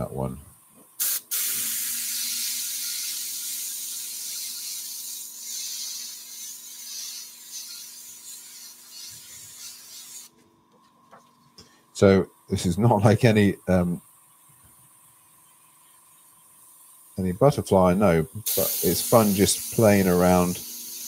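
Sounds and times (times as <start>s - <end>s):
airbrush hissing air: 1.0s - 10.3s, 18.0s - 21.0s.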